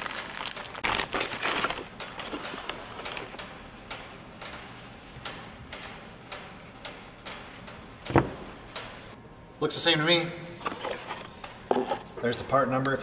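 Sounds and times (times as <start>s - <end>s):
plastic bag crinkling: 0.0s - 2.8s.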